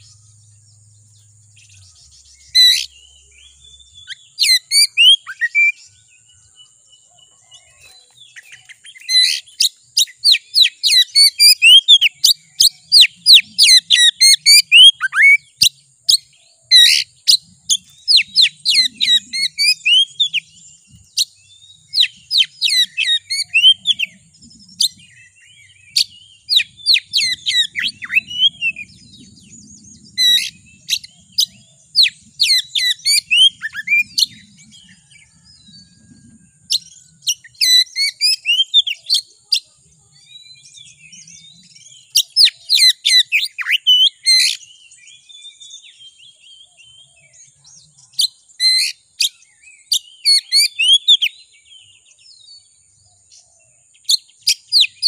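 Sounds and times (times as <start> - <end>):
bird singing whistled notes: 0.0 - 55.0.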